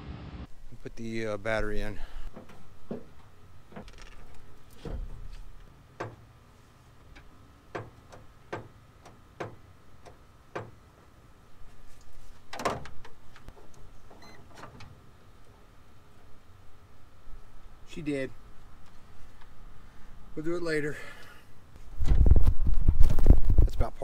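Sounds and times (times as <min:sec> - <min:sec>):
clicks and metal knocks: 0:02.3 - 0:06.3, 0:07.1 - 0:10.8.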